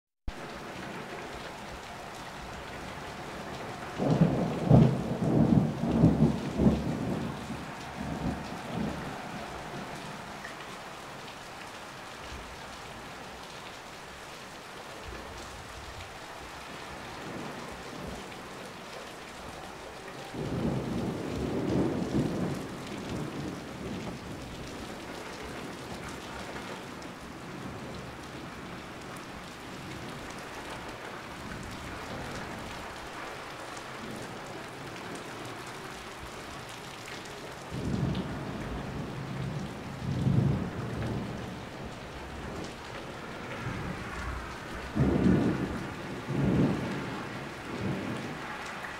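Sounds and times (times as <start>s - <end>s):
heavy rain falling: 0.3s - 48.9s
thunder rolling: 2.3s - 10.6s, 20.3s - 28.1s, 37.7s - 42.8s, 43.4s - 48.5s.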